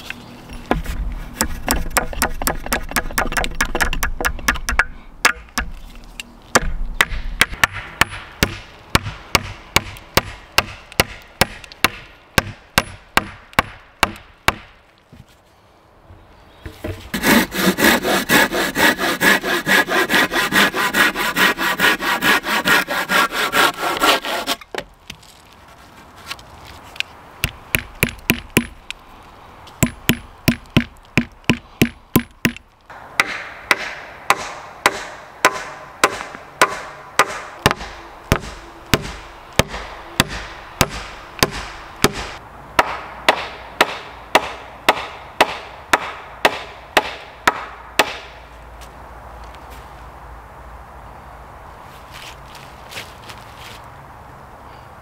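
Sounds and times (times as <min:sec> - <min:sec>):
hatchet striking a log: 0:00.7 - 0:05.8, 0:06.5 - 0:14.8, 0:27.4 - 0:28.8, 0:29.8 - 0:48.3
hand saw cutting through log: 0:17.1 - 0:24.6.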